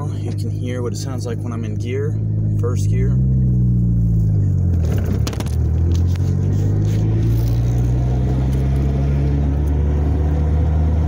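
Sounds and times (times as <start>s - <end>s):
car engine drone: 0.0s - 11.0s
gearbox grinding: 4.3s - 9.0s.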